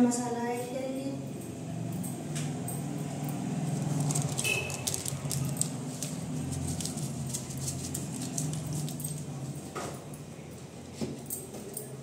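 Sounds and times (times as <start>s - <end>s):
plastic packet crinkling: 3.7s - 9.3s.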